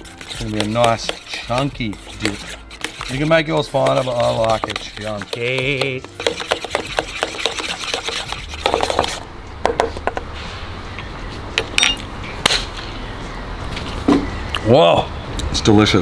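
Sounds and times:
metal spoon scraping steel bowl: 0.0 - 9.2.

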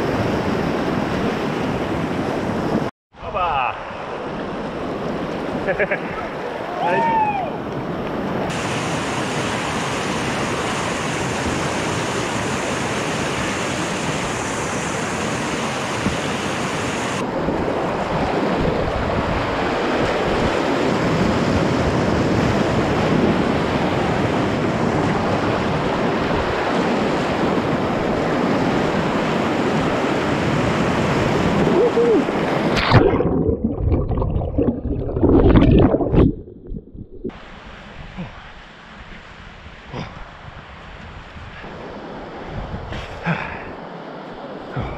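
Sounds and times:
rushing whitewater: 3.4 - 21.0.

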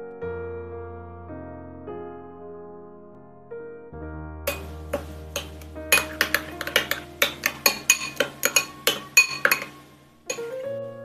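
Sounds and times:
soft piano music: 0.0 - 11.0
metal utensil clinking against bowl: 4.5 - 10.6.

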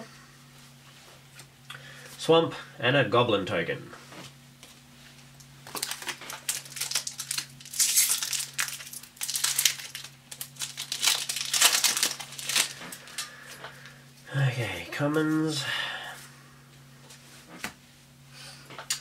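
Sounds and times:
foil wrapper crinkling: 5.6 - 13.6.

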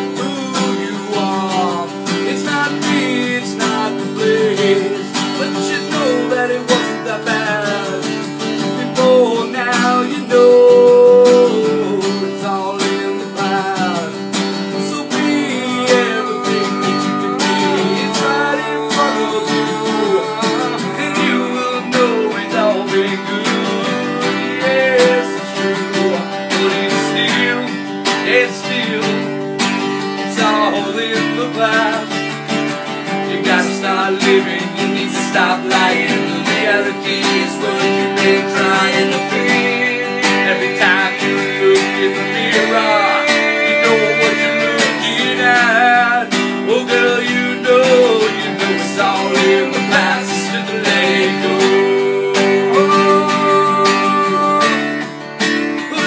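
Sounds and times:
acoustic guitar strumming: 0.0 - 56.0
men singing: 0.0 - 56.0.

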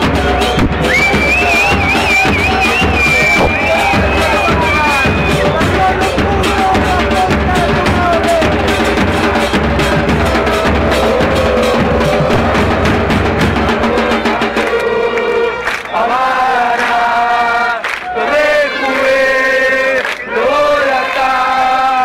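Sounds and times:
bass drums: 0.0 - 15.4
crowd chanting in unison: 0.0 - 22.0.

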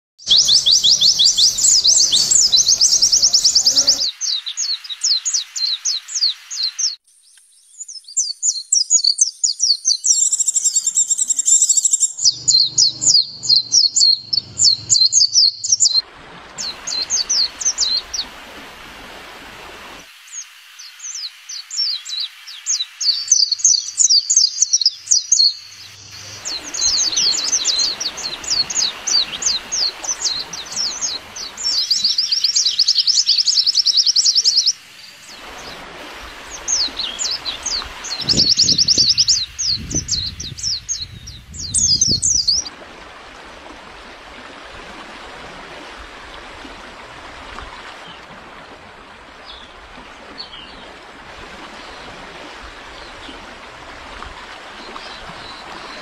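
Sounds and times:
birds twittering: 0.2 - 7.0, 7.7 - 16.0, 16.6 - 18.4, 20.3 - 42.7.

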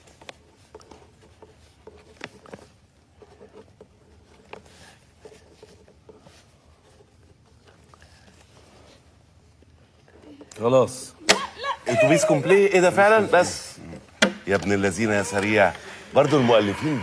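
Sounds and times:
pens scratching on paper: 0.0 - 9.0.

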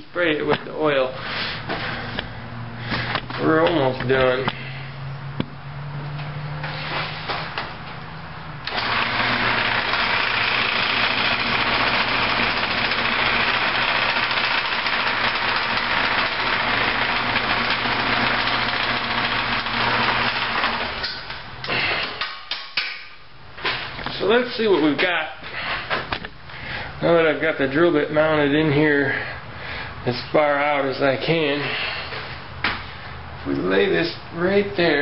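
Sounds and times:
lathe motor hum: 8.6 - 21.1
drill bit boring into wood: 8.7 - 21.2.

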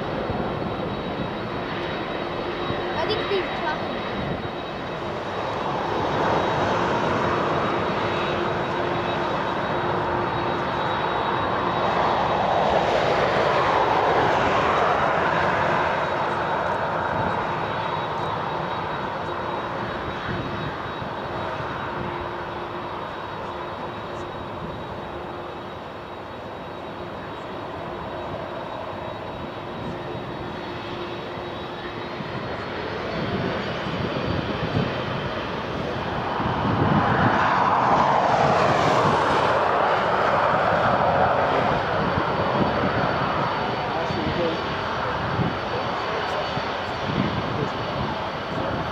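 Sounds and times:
jet engines roaring at takeoff: 0.0 - 48.9.

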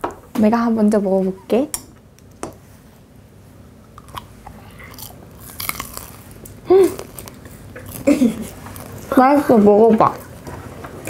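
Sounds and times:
chewing and crunching: 4.0 - 10.4.

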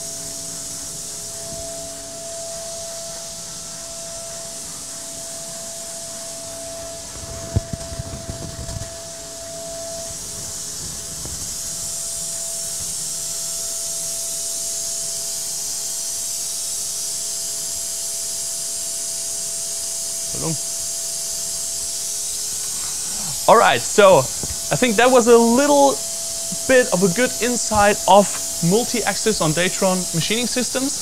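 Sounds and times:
steady hiss: 0.0 - 31.0
milling spindle high tone: 22.5 - 31.0.

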